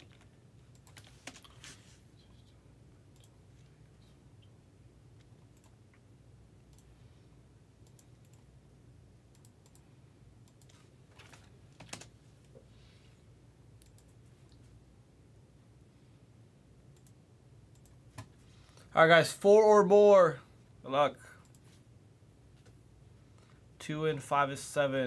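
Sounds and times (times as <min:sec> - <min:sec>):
computer keyboard and mouse clicks: 0:00.0 - 0:01.6, 0:10.4 - 0:12.1
low steady hum: 0:00.0 - 0:25.0.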